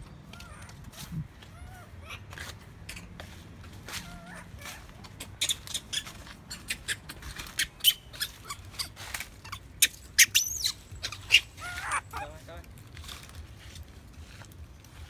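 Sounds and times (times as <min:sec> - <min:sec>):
baby monkey crying: 0:00.3 - 0:02.3, 0:03.9 - 0:12.5.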